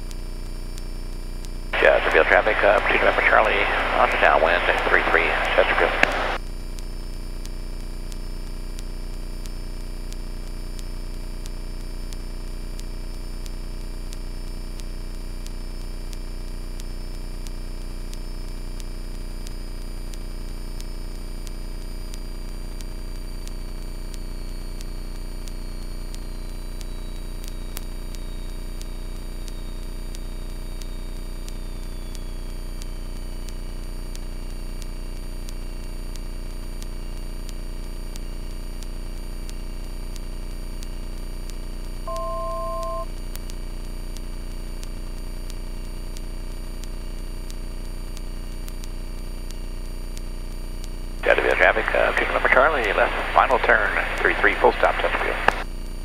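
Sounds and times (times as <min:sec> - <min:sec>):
light aircraft engine drone: 0:01.8 - 0:06.4
electronic two-tone beep: 0:42.1 - 0:43.1.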